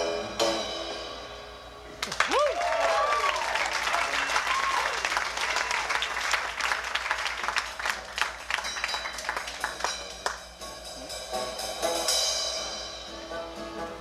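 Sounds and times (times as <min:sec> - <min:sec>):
audience applause and cheering: 0:02.0 - 0:10.4
acoustic guitar: 0:08.5 - 0:14.0
banjo: 0:10.6 - 0:14.0.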